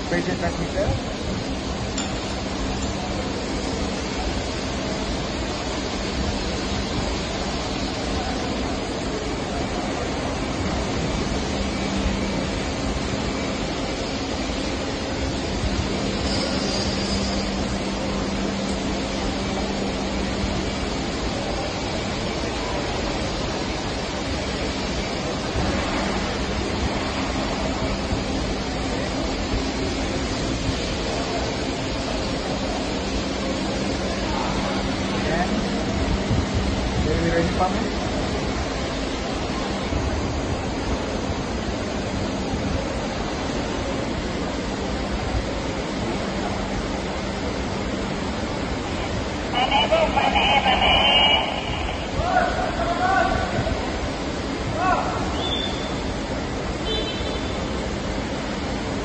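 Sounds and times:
power plant machinery noise: 0.0 - 59.0.

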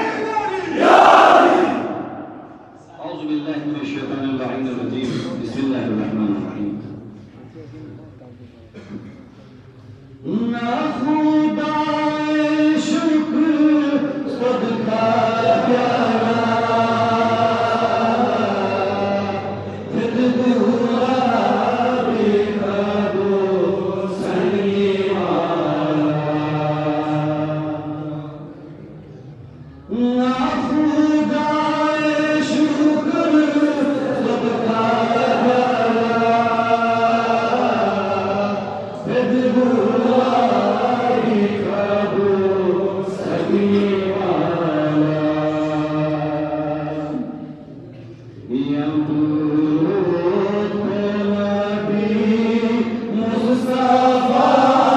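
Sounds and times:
man chanting: 10.2 - 28.9, 29.8 - 47.5, 48.4 - 54.9.

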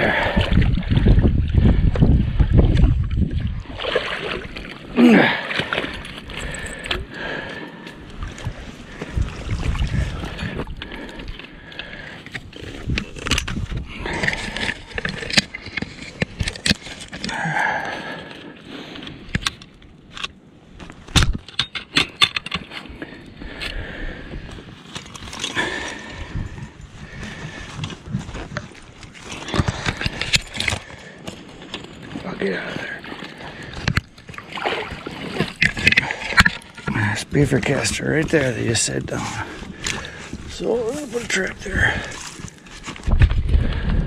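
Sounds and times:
water splashing and sloshing: 0.0 - 44.0
rain gear rustling: 24.6 - 43.3.

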